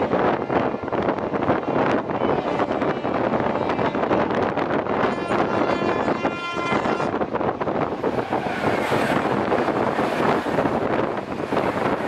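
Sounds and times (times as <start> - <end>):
train wheels rumbling on rails: 0.0 - 12.0
wind buffeting microphone: 0.0 - 12.0.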